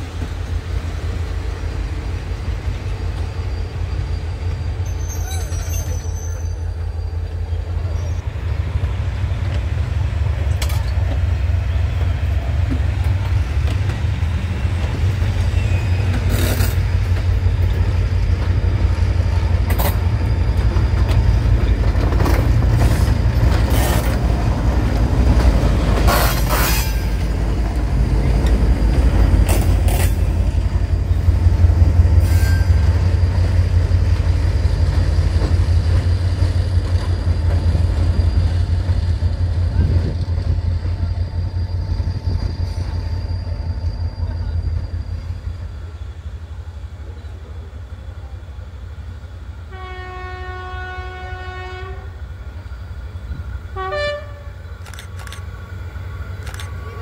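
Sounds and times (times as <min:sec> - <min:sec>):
train wheel noise: 0:00.0 - 0:57.0
sharp metallic wheel sounds: 0:26.1 - 0:27.2.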